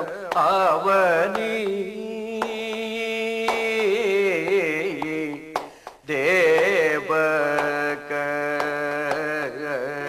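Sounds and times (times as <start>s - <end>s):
man singing ornamented notes: 0.0s - 10.0s.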